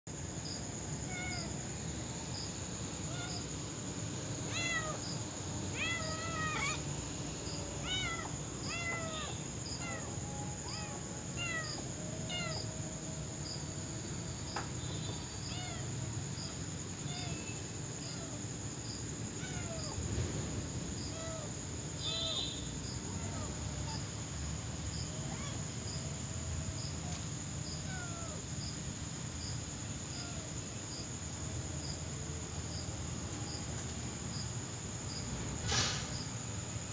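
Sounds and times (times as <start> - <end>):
crickets chirping: 0.1 - 36.9
kittens mewing: 1.0 - 1.6, 4.4 - 7.0, 7.6 - 12.7, 19.4 - 20.0.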